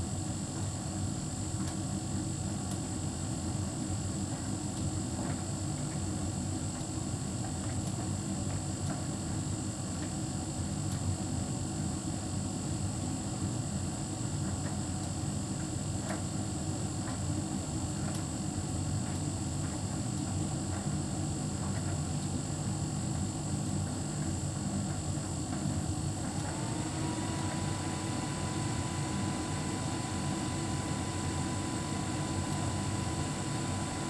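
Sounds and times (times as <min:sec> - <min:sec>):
tumble dryer humming: 0:23.4 - 0:34.0
rising whine: 0:26.3 - 0:34.0.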